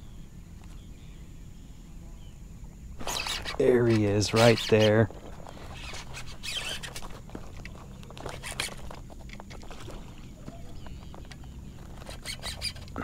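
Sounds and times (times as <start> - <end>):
fishing reel ticking and whirring: 3.0 - 7.2, 11.8 - 13.0.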